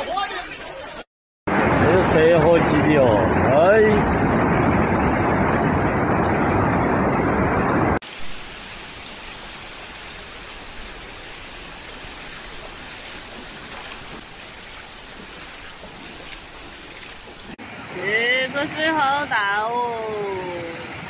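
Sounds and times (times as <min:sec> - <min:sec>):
floodwater rushing: 0:00.0 - 0:21.0
flowing water: 0:00.0 - 0:21.0.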